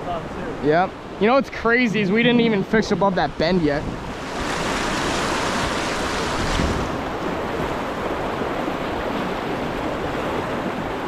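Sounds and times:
stream water rushing: 0.0s - 11.0s.

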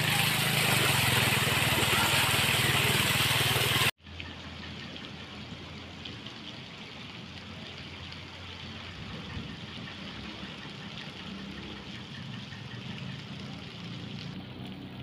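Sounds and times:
wash of water: 0.0s - 3.9s
low engine hum: 11.2s - 15.0s.

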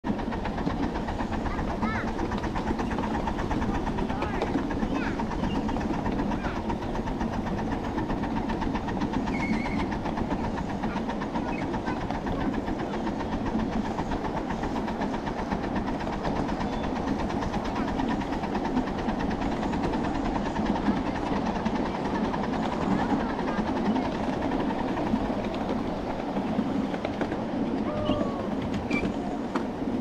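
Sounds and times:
train wheels clattering on rails: 0.1s - 30.0s.

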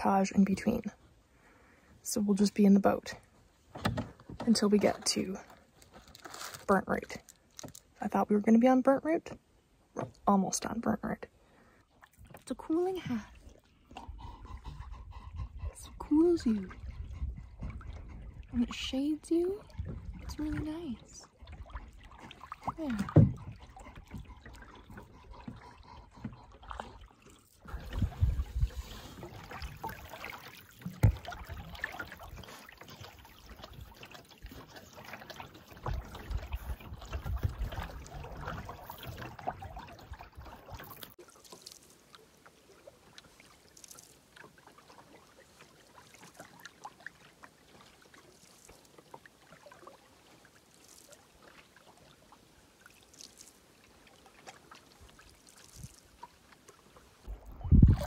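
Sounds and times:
paddle strokes through water: 11.3s - 58.0s
water trickling and dripping: 12.0s - 58.0s
low rumbles and knocks: 19.7s - 20.7s.

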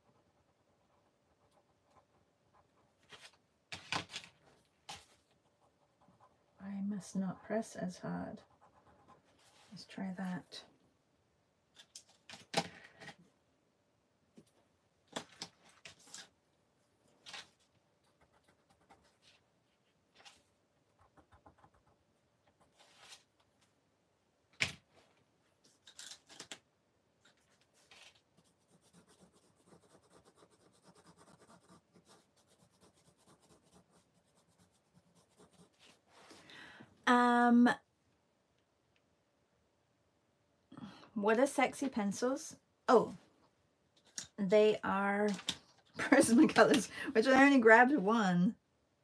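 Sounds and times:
colored pencil scratching on paper: 0.0s - 3.4s, 4.9s - 10.4s, 18.0s - 19.4s, 20.2s - 23.3s, 27.6s - 36.4s.

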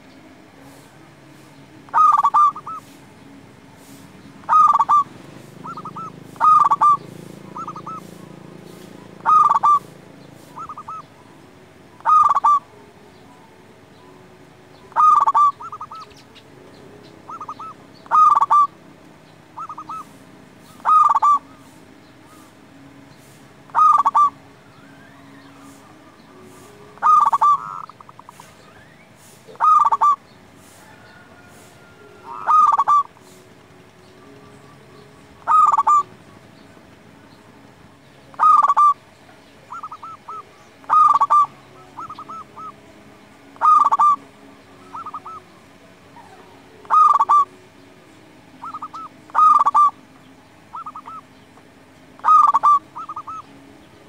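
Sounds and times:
dove cooing: 1.8s - 3.0s, 3.8s - 11.2s, 11.9s - 16.4s, 17.0s - 18.8s, 19.4s - 22.6s, 23.2s - 28.6s, 29.2s - 33.6s, 34.2s - 37.2s, 38.3s - 42.9s, 43.5s - 47.6s, 48.6s - 50.1s, 50.7s - 51.3s, 52.2s - 53.5s.

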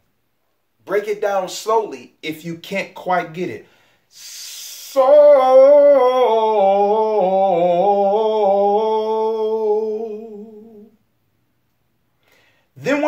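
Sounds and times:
man singing vocal run: 4.2s - 11.0s.

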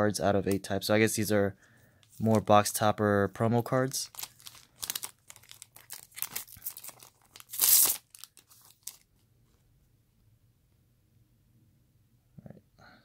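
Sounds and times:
foil wrapper tearing and crinkling: 4.0s - 9.1s.

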